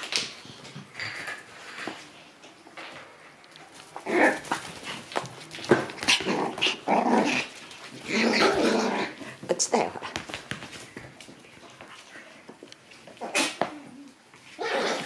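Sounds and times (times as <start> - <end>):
puppies growling and yapping: 3.9 - 9.4, 12.1 - 15.0.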